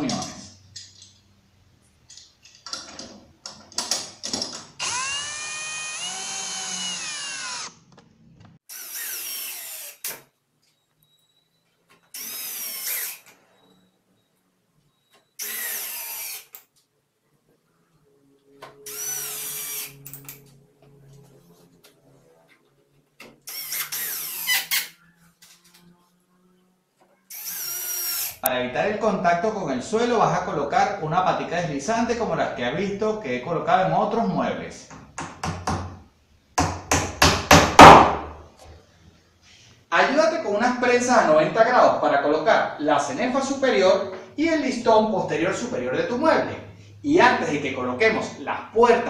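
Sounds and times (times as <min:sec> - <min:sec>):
cordless drill whining: 0:04.8 - 0:07.8, 0:08.7 - 0:10.2, 0:12.1 - 0:13.4, 0:15.4 - 0:16.6, 0:18.9 - 0:20.4, 0:23.5 - 0:25.0, 0:27.3 - 0:28.5.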